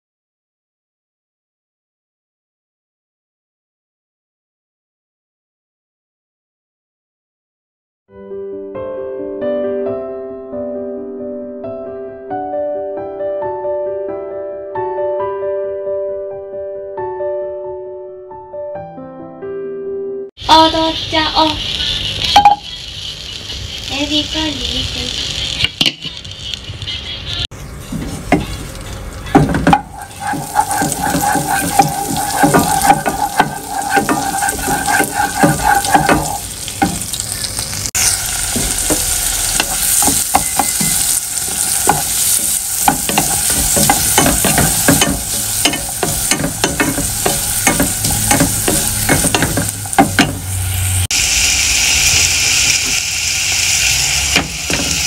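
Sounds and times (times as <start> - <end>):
onion sizzling in a saucepan: 20.4 - 55.0
wooden spatula scraping a pan: 29.3 - 37.6, 38.2 - 51.1.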